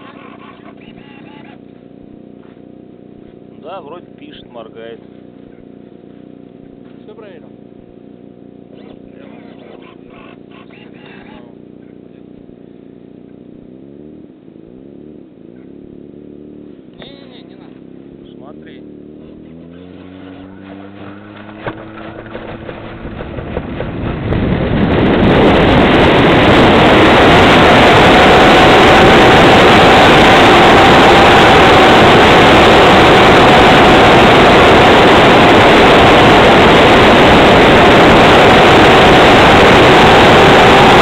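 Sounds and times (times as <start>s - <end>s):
faint plane engine: 0.0s - 16.0s
wind rushing over microphone: 20.7s - 41.0s.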